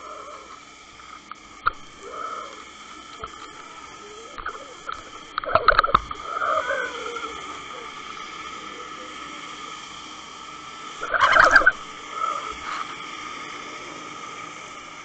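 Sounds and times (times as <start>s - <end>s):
underwater hum: 0.0s - 15.0s.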